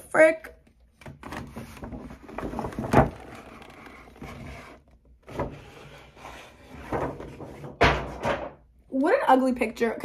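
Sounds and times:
cardboard box sliding: 1.6 - 6.9.

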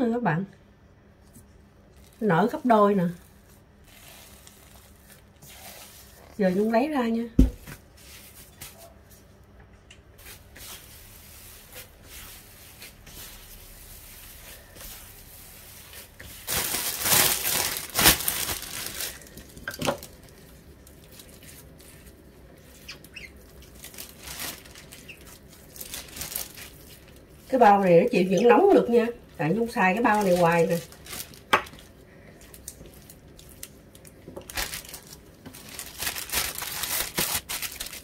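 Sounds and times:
plastic gloves rustling: 1.2 - 9.5, 10.2 - 38.0
dough tearing: 35.6 - 38.0.

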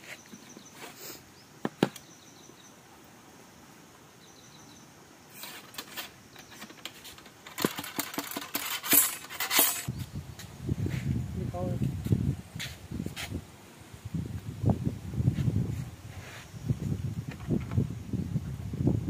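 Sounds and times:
ramrod rattling and scraping: 5.3 - 9.9
metallic clicks and clinks: 5.4 - 9.9.

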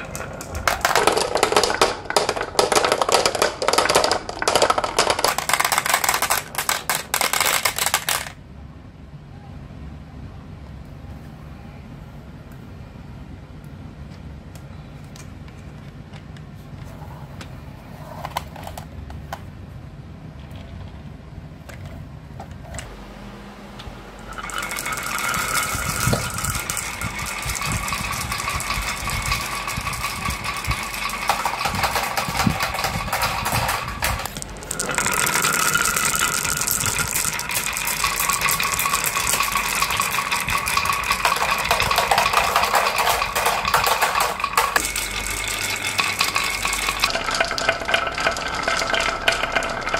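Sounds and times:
marbles rattling down wooden tracks: 0.0 - 8.4, 24.3 - 49.9.

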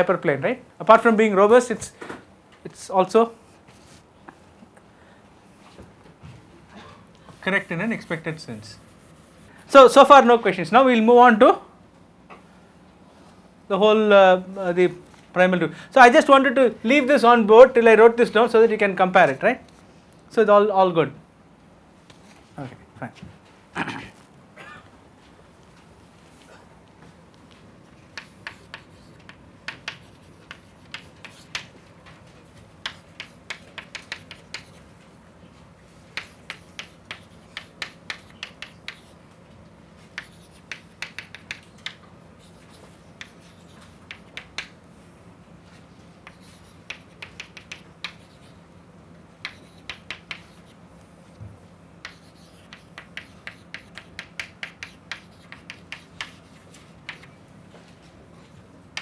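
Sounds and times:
faint steady hum: 0.0 - 59.0
chalk tapping and scratching: 3.4 - 4.4, 8.8 - 9.4, 27.4 - 35.0, 35.9 - 39.2, 40.0 - 44.8, 45.7 - 48.6, 49.4 - 50.8, 52.0 - 57.3.

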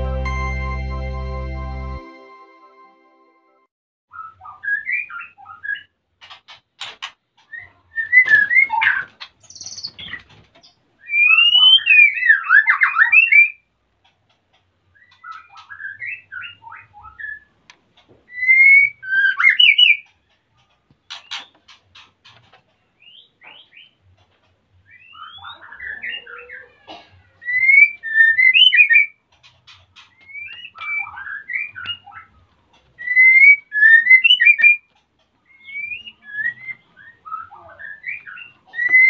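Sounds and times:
bird singing whistled phrases: 11.1 - 13.6, 18.3 - 20.0, 27.4 - 29.1, 33.0 - 34.8, 35.6 - 39.0.

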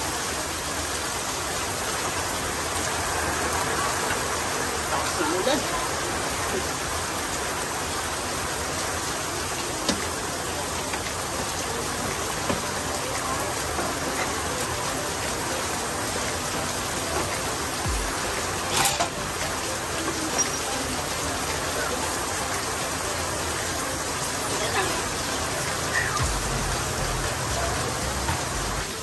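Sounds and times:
metallic clank: 18.7 - 19.2.

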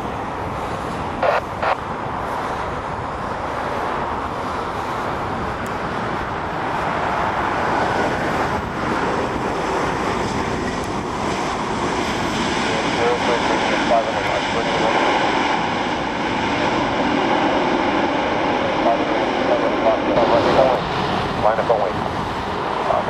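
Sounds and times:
jet engines rushing: 0.0 - 23.0.

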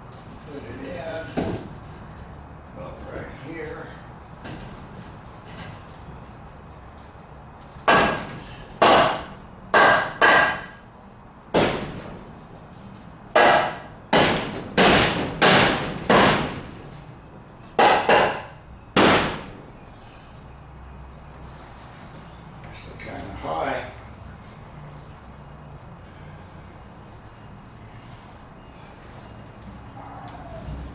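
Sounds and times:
hammer driving nails into wood: 13.4 - 16.7.

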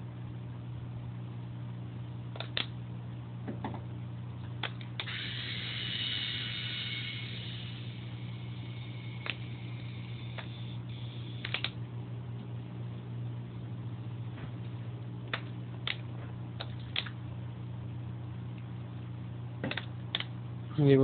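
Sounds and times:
low electrical hum: 0.0 - 21.0
sharp clicks: 2.4 - 2.7, 11.4 - 11.8, 19.6 - 20.3.

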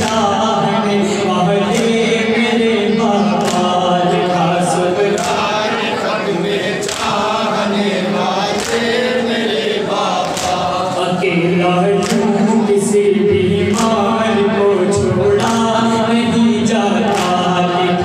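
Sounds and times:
men chanting in unison: 0.0 - 18.0
solo reciter: 0.0 - 18.0
sharp slap: 17.1 - 17.4.

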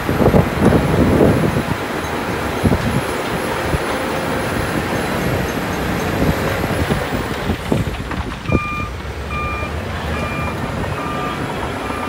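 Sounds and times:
truck engine rumbling: 0.0 - 12.0
reversing beeper: 8.5 - 12.0.

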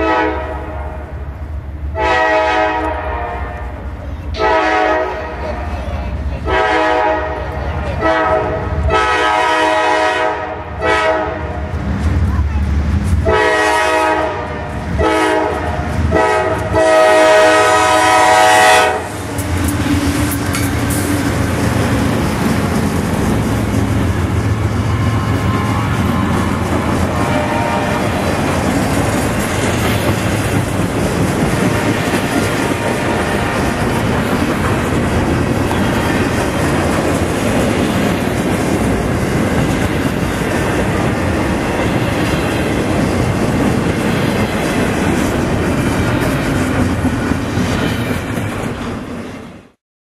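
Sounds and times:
freight train rolling past: 0.0 - 49.8
steel wheels clattering on rails: 19.2 - 48.9.

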